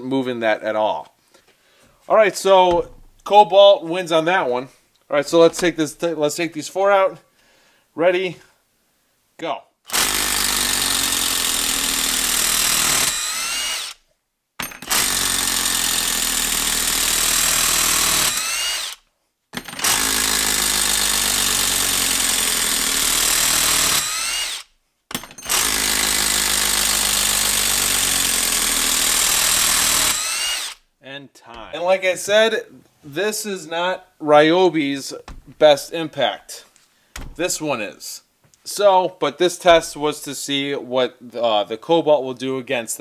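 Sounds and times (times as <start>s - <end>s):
impact driver hammering screws: 9.9s - 14.0s, 14.6s - 19.0s, 19.6s - 30.8s, 35.3s - 35.7s, 37.2s - 37.6s.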